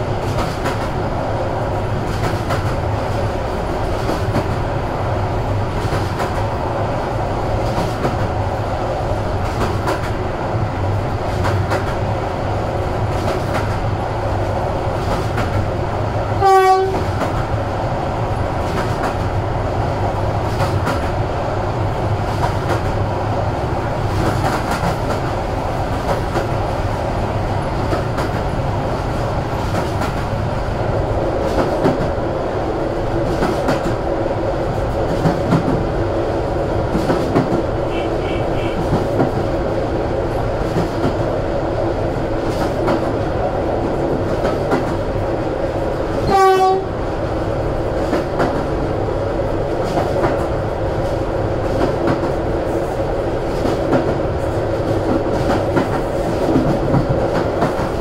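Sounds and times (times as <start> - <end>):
train wheels rumbling on track: 0.0 - 58.0
rail-joint clicks: 0.1 - 1.0, 2.0 - 4.6, 5.7 - 6.5, 7.6 - 8.4, 9.4 - 10.2, 11.2 - 12.1, 13.1 - 13.9, 15.0 - 15.7, 16.4 - 17.6, 18.6 - 19.3, 20.4 - 21.2, 22.3 - 23.0, 24.0 - 26.6, 27.8 - 28.5, 29.5 - 30.3, 33.2 - 34.0, 34.9 - 35.9, 36.9 - 39.5, 40.3 - 41.3, 42.4 - 43.3, 44.1 - 45.1, 48.0 - 48.7, 49.8 - 52.8, 53.5 - 58.0
train horn: 16.4 - 17.1, 37.9 - 38.9, 46.2 - 47.0.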